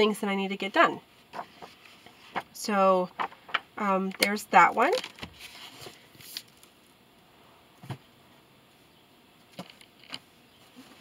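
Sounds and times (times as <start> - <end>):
book rustle: 1.3 - 2.6, 3.2 - 3.6, 4.9 - 6.7
books tapping and knocking: 1.3 - 3.9.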